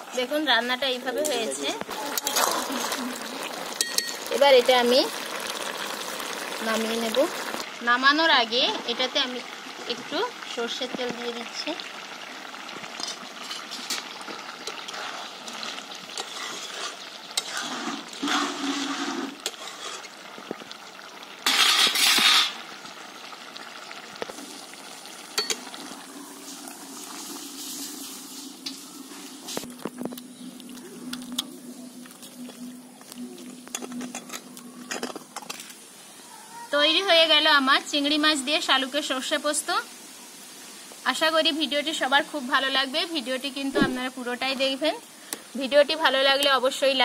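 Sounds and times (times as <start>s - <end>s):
metal spatula scraping wok: 1.3s - 3.2s, 13.0s - 20.2s, 21.4s - 22.6s
clinks against pan: 3.8s - 4.2s.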